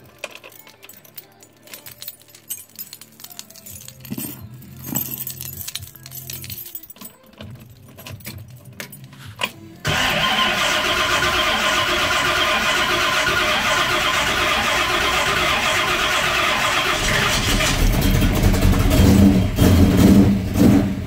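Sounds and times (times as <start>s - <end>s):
keys jangling on a ring: 0.0s - 9.8s
car engine starting and running: 9.8s - 21.0s.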